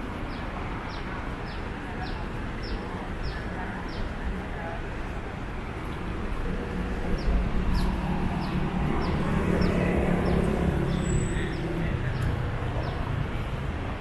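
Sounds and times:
traffic rumble: 0.0 - 14.0
vehicle passing: 4.9 - 14.0.

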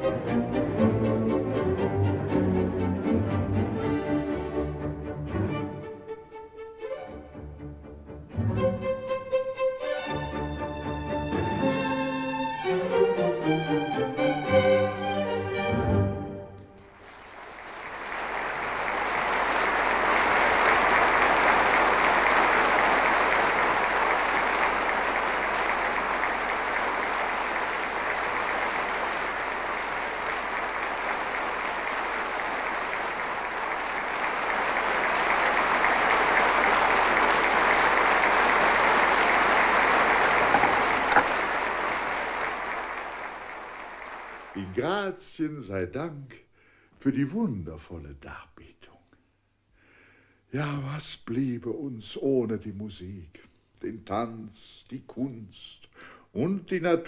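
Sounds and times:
string music: 0.0 - 17.0
audience applause: 16.8 - 44.9.

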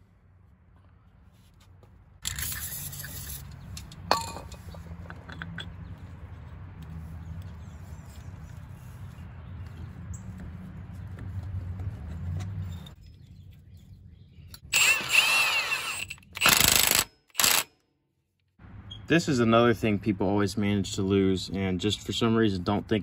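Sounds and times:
metal engine parts handled: 2.2 - 6.6.

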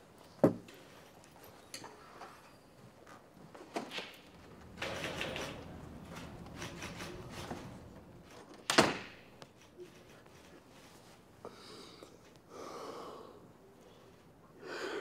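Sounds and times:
door opening: 3.7 - 9.3.

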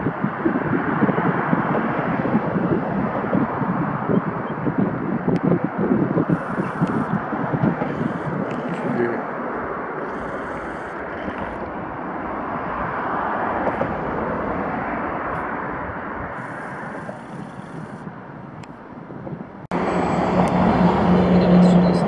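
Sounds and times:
train rushing rumble: 5.6 - 18.0, 19.2 - 22.0.

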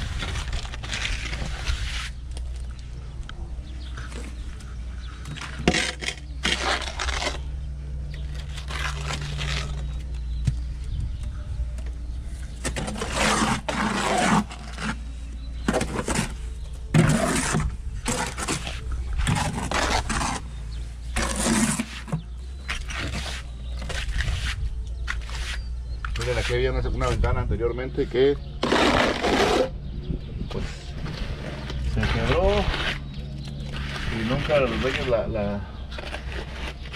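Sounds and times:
trowel scraping cement: 0.0 - 2.7, 5.2 - 7.4, 12.6 - 20.5, 21.1 - 26.6, 28.6 - 29.8, 31.0 - 36.9.

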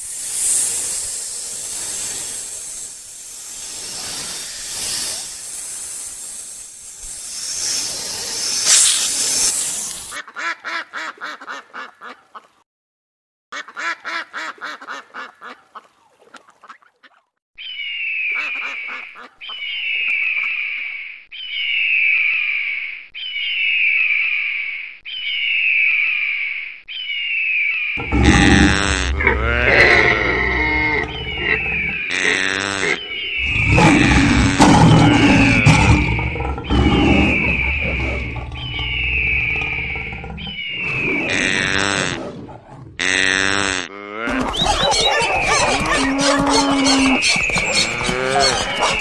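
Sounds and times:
rushing hiss-like noise: 0.0 - 10.2
fast pulsing animal calls: 0.3 - 10.2, 28.0 - 42.2, 44.3 - 49.0
animal call falling in pitch: 44.2 - 49.0.

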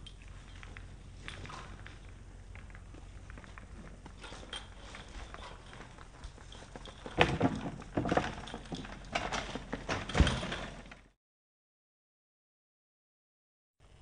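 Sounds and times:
bicycle clattering over dirt: 2.6 - 11.0.

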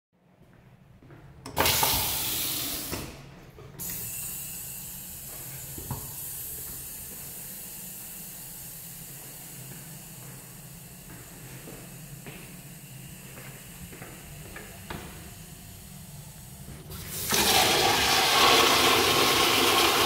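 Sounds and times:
faucet water running into sink: 16.9 - 20.0.

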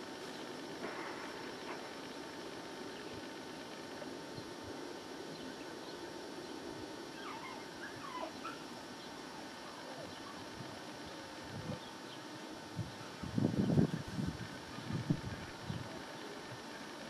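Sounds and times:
dog whimpering: 7.2 - 8.6.

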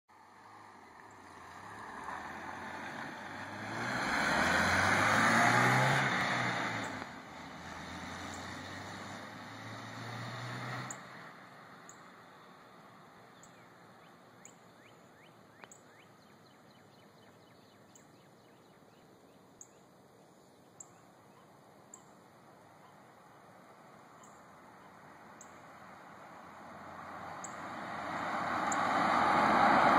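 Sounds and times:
car engine accelerating: 0.4 - 12.1, 25.5 - 29.9.

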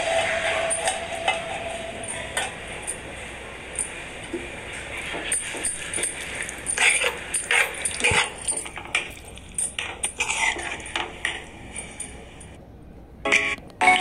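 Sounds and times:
clothing store ambience: 0.0 - 14.0
light clicks and clinks: 3.8 - 12.6.

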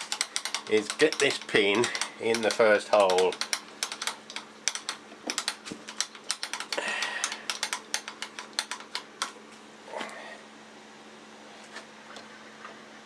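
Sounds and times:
rapid mechanical clicking: 0.0 - 9.4
faint steady hum: 0.0 - 13.0.

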